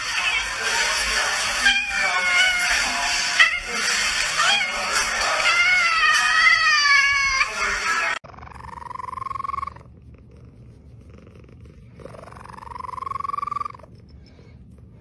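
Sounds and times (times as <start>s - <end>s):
cat mewing: 1.5s - 7.6s
cat purring: 8.2s - 15.0s.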